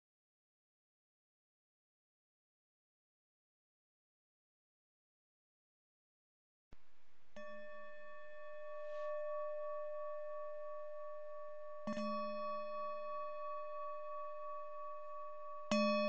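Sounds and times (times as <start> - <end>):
singing bowl ringing: 7.4 - 16.0.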